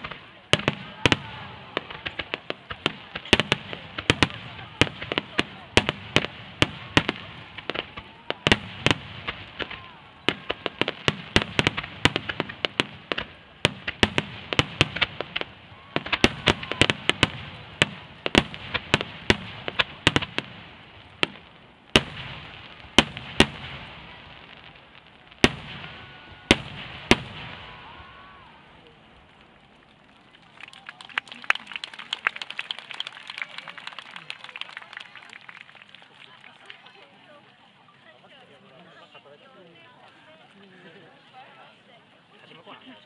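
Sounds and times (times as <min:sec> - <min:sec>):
fireworks bursting: 0:00.0 - 0:30.4.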